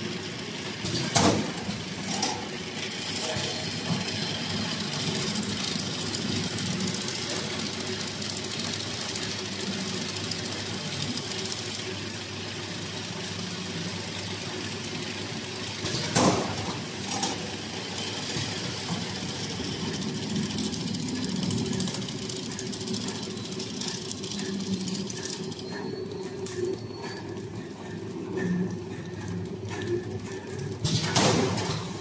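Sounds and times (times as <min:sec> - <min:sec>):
packing machine running: 0:00.0 - 0:32.0
sharp machine clack: 0:15.8 - 0:32.0.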